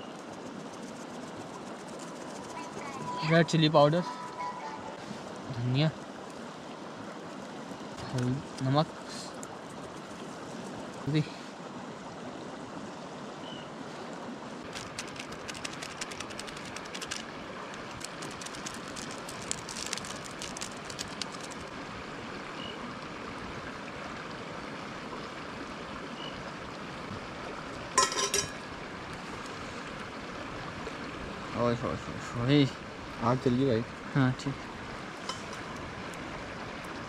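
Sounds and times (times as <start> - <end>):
river water flowing: 0.0 - 37.0
rapid small clicks: 14.6 - 21.7.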